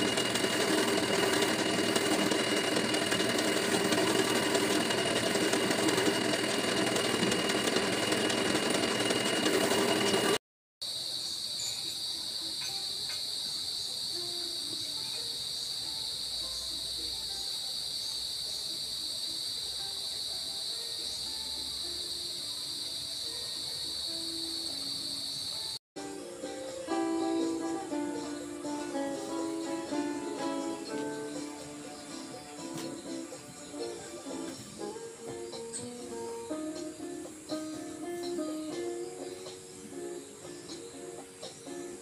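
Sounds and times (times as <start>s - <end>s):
buffing wheel machine drone: 0.0s - 10.4s.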